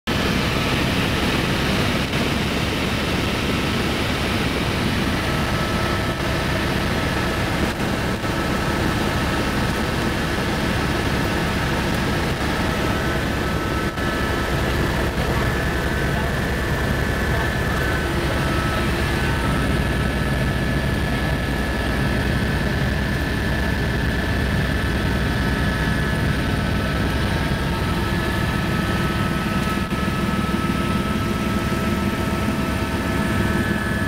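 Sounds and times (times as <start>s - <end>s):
helicopter engine and rotor noise: 0.1s - 34.0s
faint high whine: 11.2s - 22.6s.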